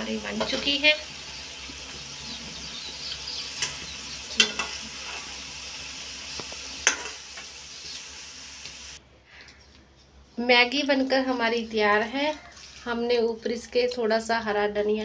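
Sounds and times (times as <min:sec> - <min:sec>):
noodles sizzling in a pan: 0:00.0 - 0:09.0
metal spatula knocking on pan: 0:04.4 - 0:04.8.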